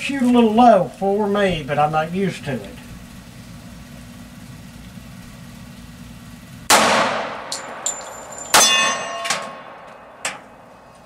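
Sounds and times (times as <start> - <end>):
pistol shots: 6.7 - 9.8
metallic ringing and clinks: 7.5 - 9.7.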